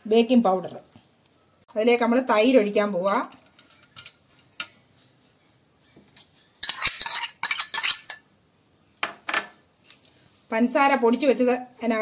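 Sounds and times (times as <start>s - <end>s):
metal clattering in steel bowl: 3.0s - 4.7s, 6.6s - 8.2s.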